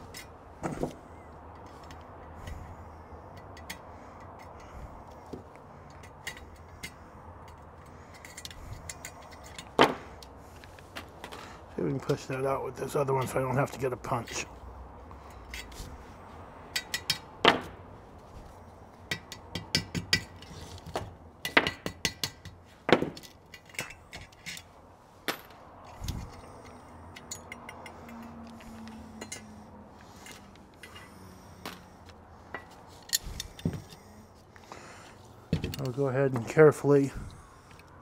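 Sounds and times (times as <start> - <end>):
metal parts clinking: 5.9 - 10.4, 21.4 - 31.8, 32.5 - 34.1.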